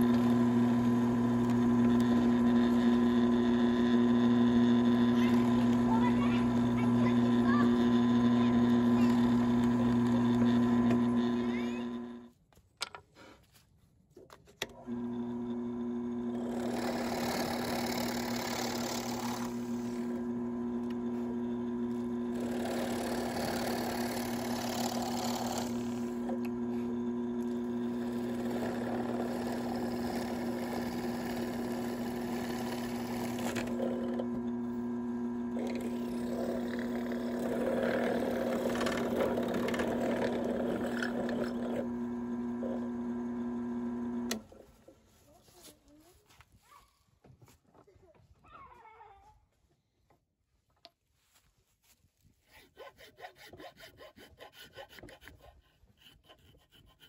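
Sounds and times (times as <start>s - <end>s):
drill bit cutting wood: 0.0s - 12.3s, 14.8s - 44.4s
drill press motor hum: 0.0s - 12.3s, 14.6s - 44.6s.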